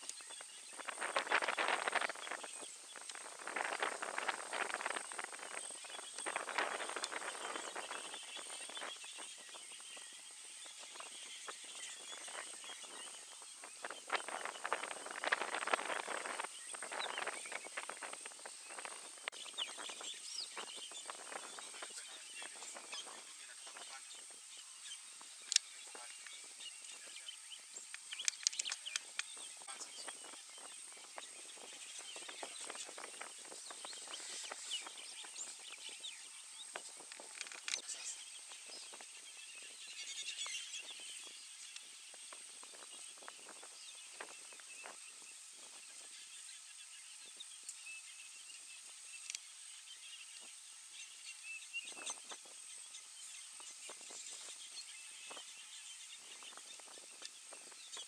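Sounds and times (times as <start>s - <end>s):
crackles and rustles: 0.0s - 9.7s, 10.6s - 24.4s, 36.6s - 39.2s
steady high hiss: 0.0s - 58.0s.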